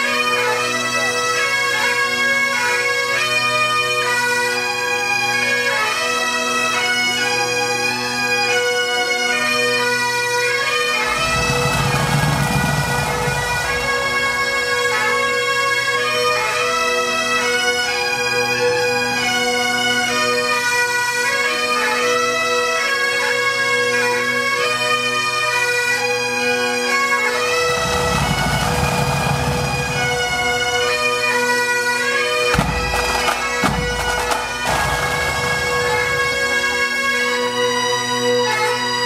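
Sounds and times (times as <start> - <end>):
pipe band bagpipes playing: 0.0 - 39.0
sharp knocks: 32.5 - 36.4.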